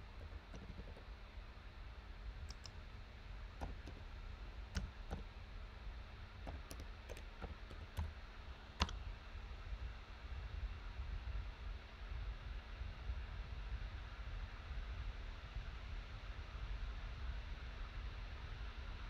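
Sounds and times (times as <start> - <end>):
keyboard typing clicks: 0.1 - 1.0, 2.5 - 2.8, 3.6 - 4.0, 4.7 - 5.3, 6.5 - 8.2, 8.8 - 9.0.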